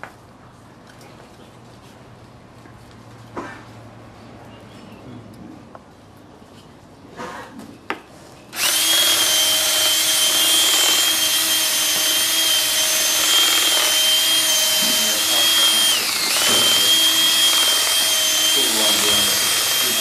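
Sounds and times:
cordless drill whining: 0:08.6 - 0:20.0.

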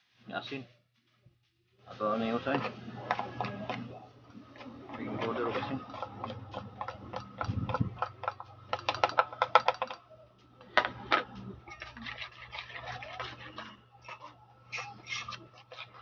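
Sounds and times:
spoon scraping plastic plate: 0:02.4 - 0:10.0, 0:10.8 - 0:16.0
spoon knocking: 0:04.9 - 0:10.0.

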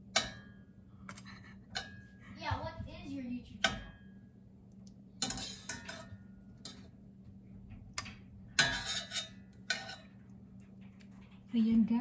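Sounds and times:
utensils clinking on metal pan: 0:00.0 - 0:02.1, 0:05.2 - 0:06.9, 0:08.5 - 0:10.2.

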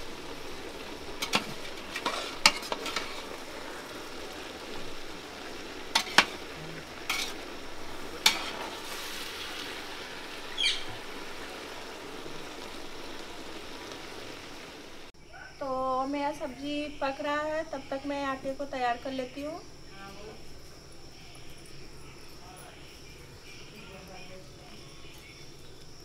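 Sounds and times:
vegetables sizzling in oil: 0:00.0 - 0:26.0
metal ladle stirring and scraping: 0:01.2 - 0:03.6, 0:05.9 - 0:09.7.

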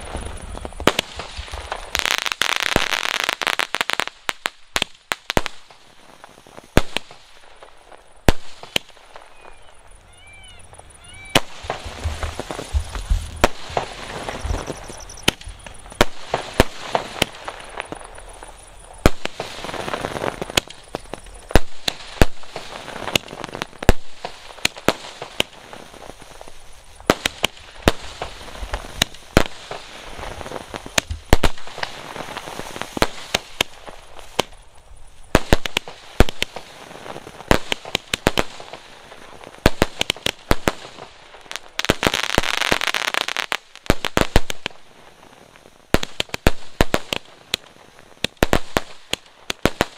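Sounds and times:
fireworks bangs and cracks: 0:00.0 - 0:49.9
low thuds: 0:11.5 - 0:16.0.

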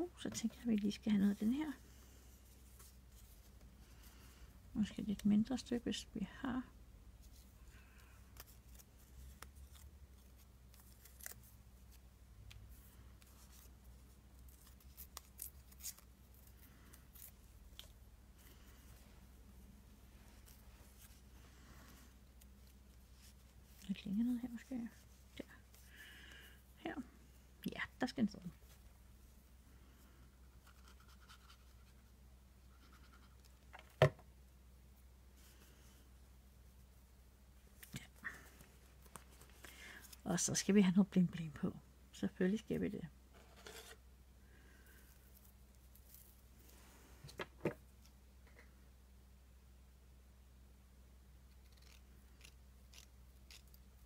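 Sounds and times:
scissors cutting paper: 0:51.6 - 0:53.8.

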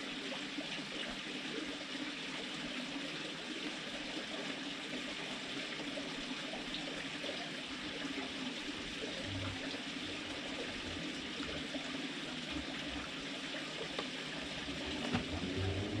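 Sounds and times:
low hum: 0:09.0 - 0:13.3, 0:13.9 - 0:16.0.

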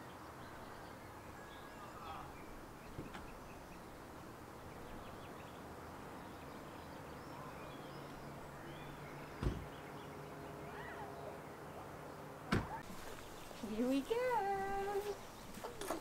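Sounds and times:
sharp thump: 0:09.4 - 0:09.7.

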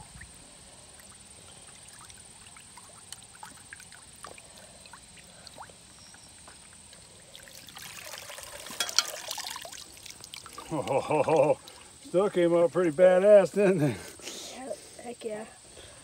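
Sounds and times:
water pouring and splashing: 0:00.0 - 0:12.4
water splashing in a bucket: 0:00.0 - 0:12.4.

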